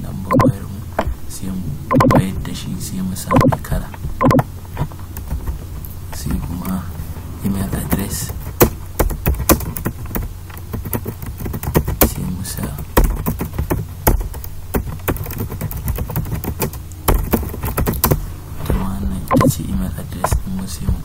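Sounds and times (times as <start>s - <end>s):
computer keyboard keys clicking: 7.8s - 18.2s.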